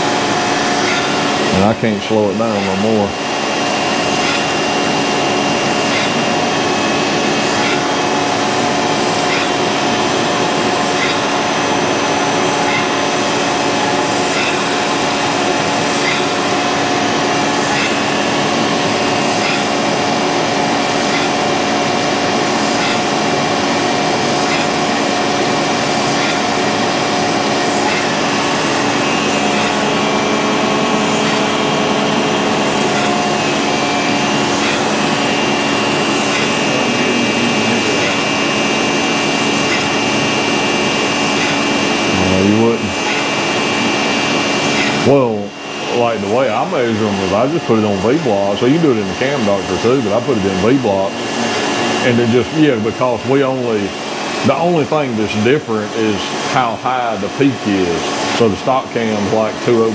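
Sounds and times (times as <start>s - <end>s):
grinding wheel humming: 0.0s - 59.9s.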